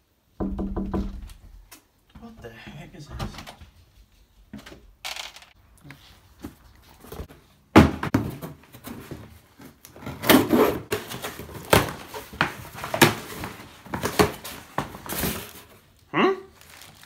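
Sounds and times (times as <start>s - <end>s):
box thudding on floor: 7.1s - 9.3s, 10.0s - 15.6s
packing tape tearing: 16.6s - 17.0s.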